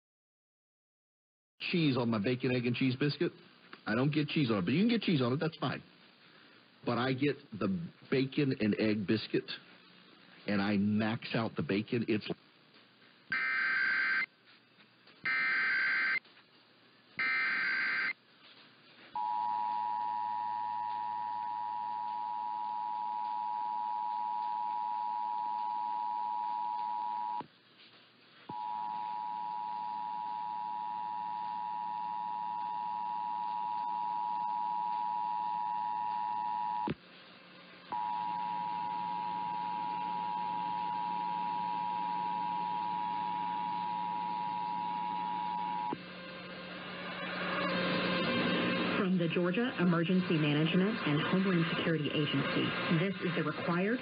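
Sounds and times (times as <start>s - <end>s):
data header tones: 13.3s - 14.3s, 15.3s - 16.2s, 17.2s - 18.1s
faint radio hum: 48.6s - 54.0s.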